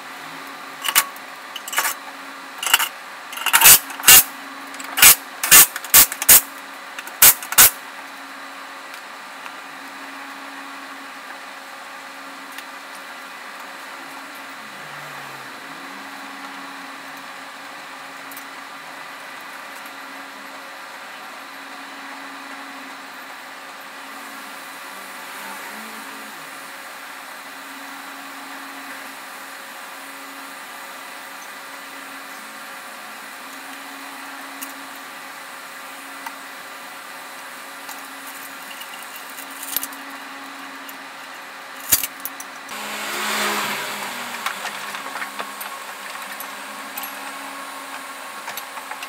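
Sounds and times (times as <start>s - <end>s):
steady low hum: 0.0s - 49.0s
impact wrench bursts: 2.6s - 7.8s, 42.7s - 47.8s.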